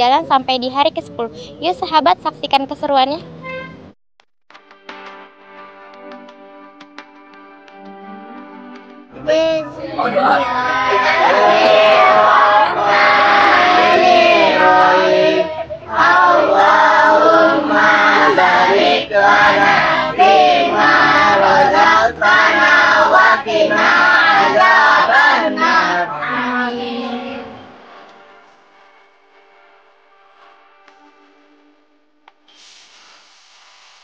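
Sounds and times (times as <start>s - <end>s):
children singing together: 9.7s - 27.8s.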